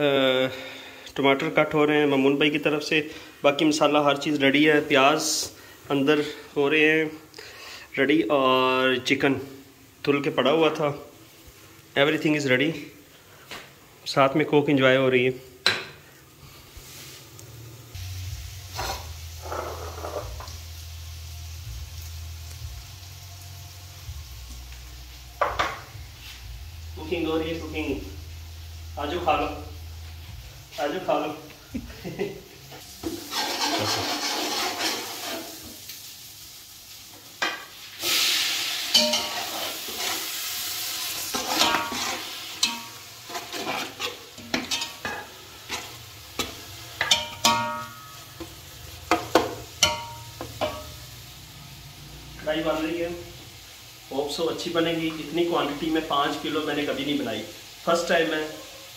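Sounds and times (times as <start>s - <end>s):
food sizzling: 0.0s - 58.9s
scraping noises: 18.7s - 20.4s, 33.1s - 35.6s, 39.1s - 40.3s, 41.3s - 42.3s, 43.2s - 44.3s.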